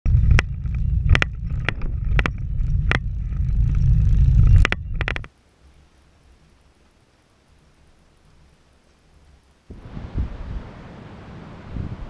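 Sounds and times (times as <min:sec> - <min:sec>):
car engine and road noise: 0:00.0 - 0:05.3
sharp knocks and rattles: 0:00.1 - 0:05.3.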